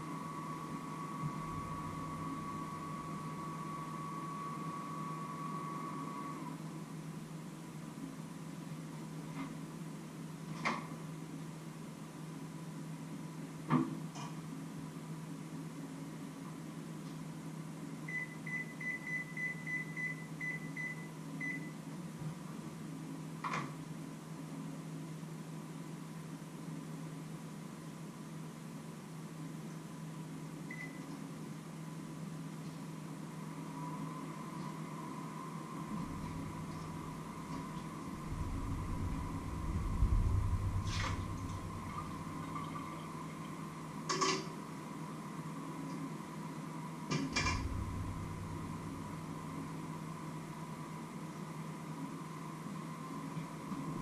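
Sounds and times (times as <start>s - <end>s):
steady low hum: 0.0s - 9.3s, 30.0s - 54.0s
water splash: 40.4s - 43.2s.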